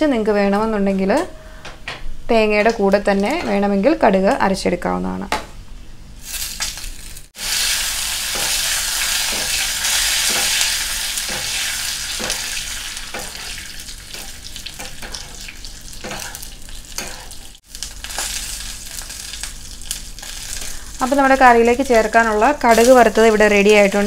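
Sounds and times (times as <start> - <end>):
leaves sizzling in hot oil: 6.2 - 24.0.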